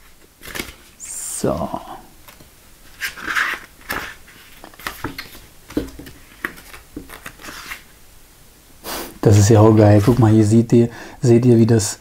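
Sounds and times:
paper pages rustling: 0.0s - 1.0s, 2.2s - 7.9s, 9.7s - 10.4s.

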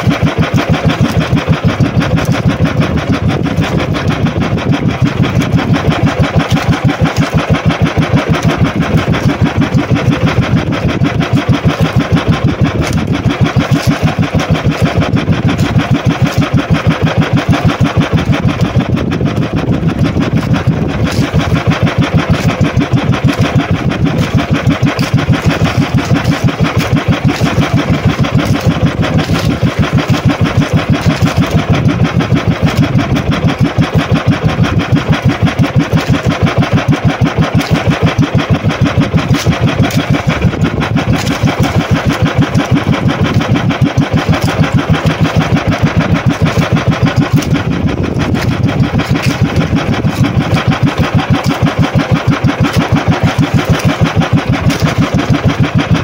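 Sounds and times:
small boat engine running: 0.0s - 56.0s.

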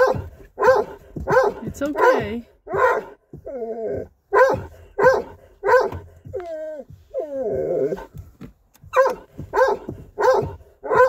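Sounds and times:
dog barking: 0.0s - 3.2s, 4.3s - 6.5s, 8.8s - 11.0s
dog whining: 0.0s - 11.0s.

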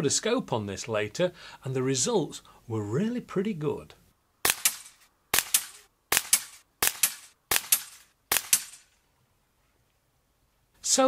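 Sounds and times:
air rifle shots sharp cracks: 4.4s - 9.0s.

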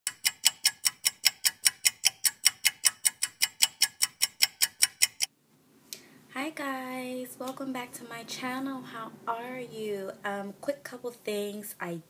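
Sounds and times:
rapid ticking: 0.1s - 5.3s.

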